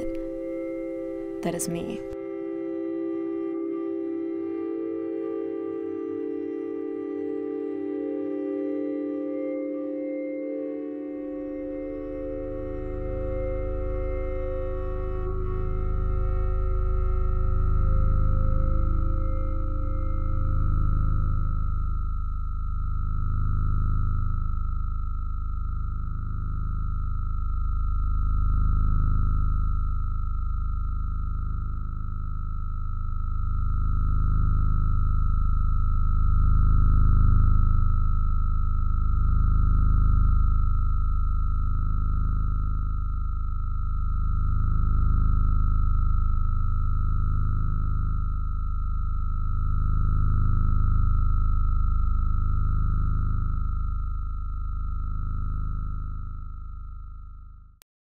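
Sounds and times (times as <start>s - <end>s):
high pure tone: 0.0s - 2.6s, 4.4s - 57.8s
deep low hum: 11.8s - 57.8s.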